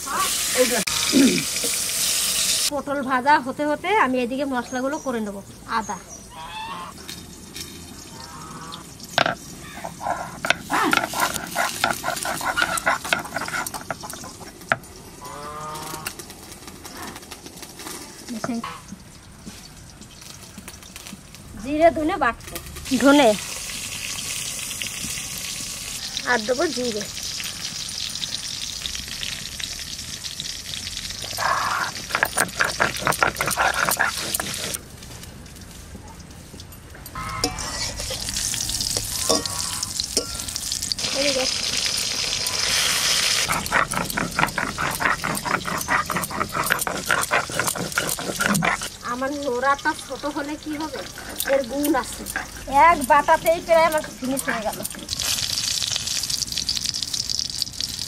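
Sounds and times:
oil sizzling in a frying pan: 0.0 - 2.7, 7.2 - 15.2, 18.3 - 32.1, 37.4 - 43.5, 52.7 - 58.0
stone roller grinding on slab: 9.2 - 14.8, 31.2 - 34.8, 37.2 - 55.4.

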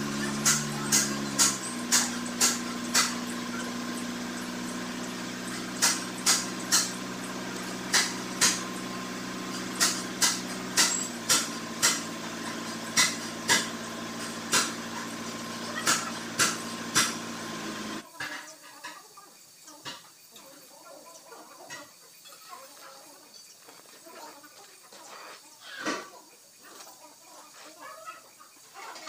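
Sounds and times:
torch flame hum and hiss: 0.0 - 18.0
sharp metallic taps: 0.3 - 4.0, 5.0 - 8.8, 9.5 - 14.8.

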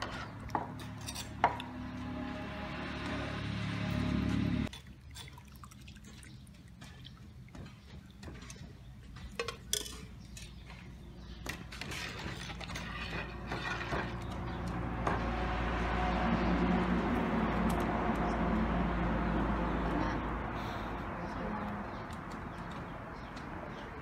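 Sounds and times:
metal ladle clinking against pot: 9.2 - 10.8.

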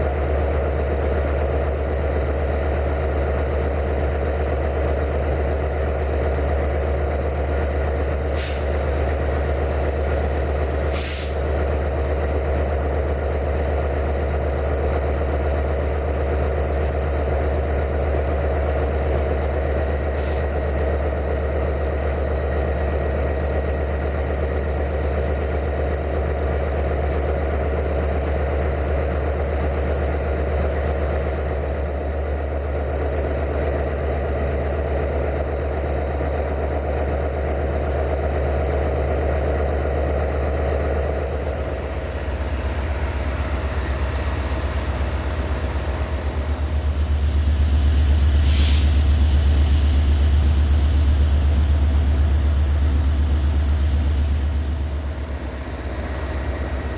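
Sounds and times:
diesel locomotive engine idling: 0.0 - 56.9
compressed air hisses: 8.4 - 8.9, 10.9 - 11.4, 48.4 - 49.1.

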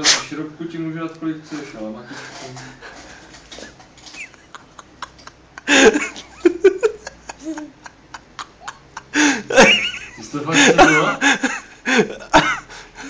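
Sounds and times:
laughter bursts: 3.6 - 12.8.

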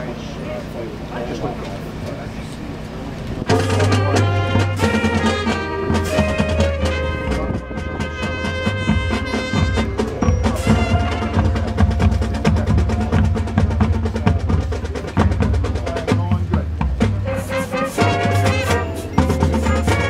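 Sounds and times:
marching band playing: 2.8 - 20.0
drum and mallet keyboard strikes: 3.5 - 20.0.

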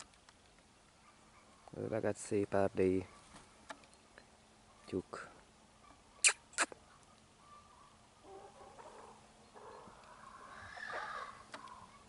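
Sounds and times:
rooster crowing: 10.1 - 11.4.

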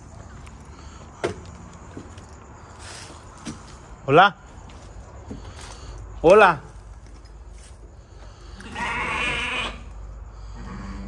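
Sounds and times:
goat bleating: 8.5 - 9.9.

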